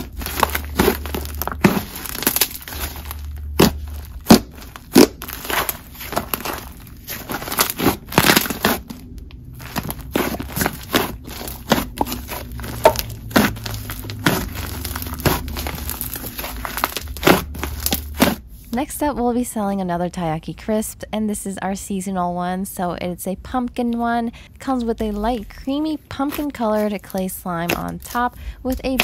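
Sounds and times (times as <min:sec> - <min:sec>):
slime popping and crackling: 0:00.0 - 0:18.4, 0:26.3 - 0:29.0.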